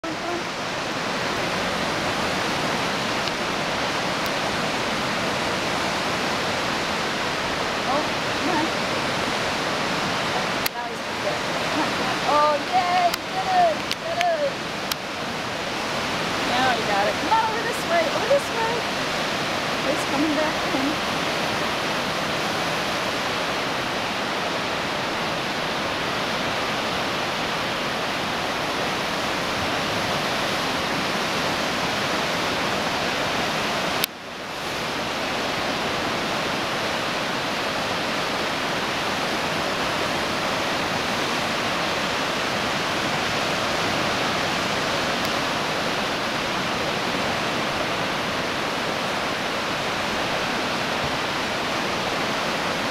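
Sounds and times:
river rapids rushing: 0:00.0 - 0:52.9.

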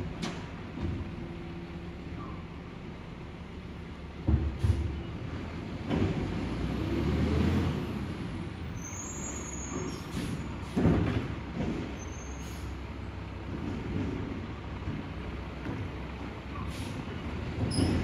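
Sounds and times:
garbage truck engine revving: 0:05.4 - 0:08.7.

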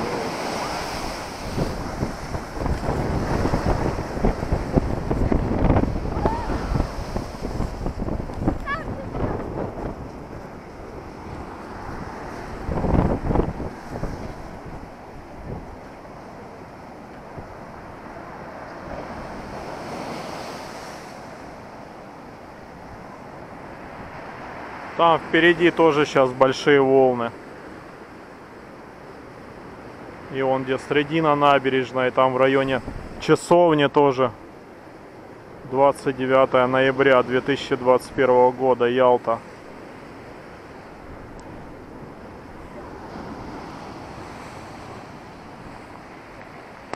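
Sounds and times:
wind buffeting microphone: 0:00.0 - 0:20.2
surf breaking over a sea wall: 0:00.0 - 0:22.0.

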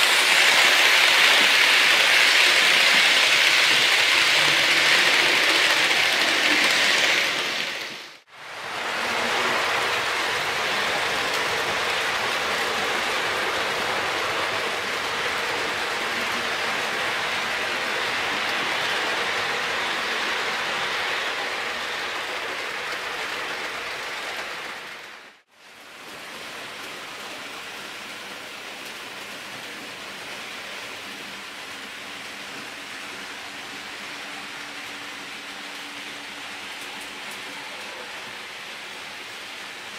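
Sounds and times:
model train wheels rolling on rails: 0:00.0 - 0:25.4, 0:26.0 - 0:39.9.

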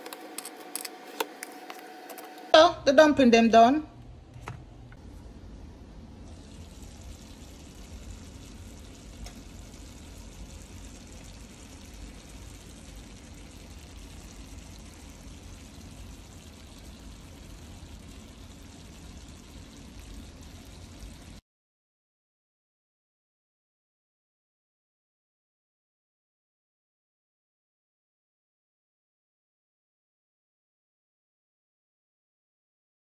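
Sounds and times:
dumplings sizzling in hot oil: 0:06.2 - 0:21.4.

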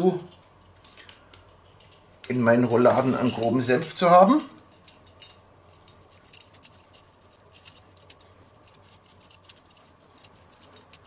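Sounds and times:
fork clicking and scraping: 0:04.8 - 0:11.0.

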